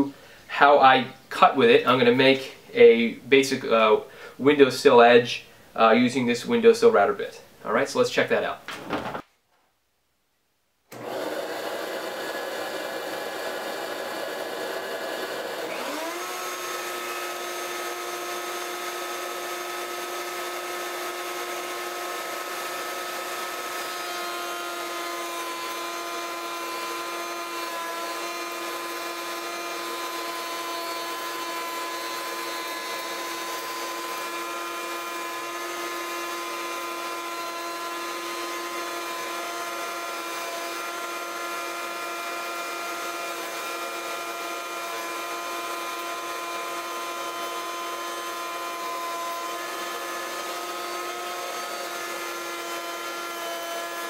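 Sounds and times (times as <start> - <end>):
shop vacuum running: 10.9 - 54.0
wood router high whine: 10.9 - 54.0.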